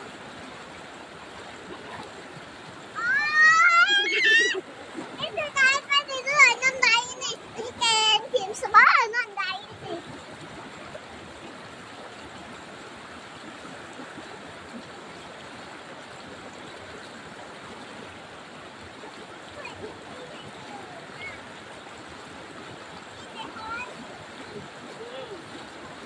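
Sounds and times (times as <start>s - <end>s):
distant voices calling out: 2.9s - 4.6s.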